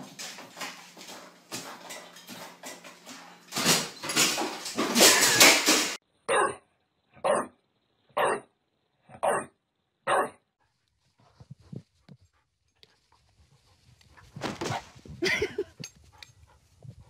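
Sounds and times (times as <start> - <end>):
dog barking: 6.3 - 6.6, 7.2 - 7.6, 8.2 - 8.5, 9.1 - 9.5, 10.1 - 10.4.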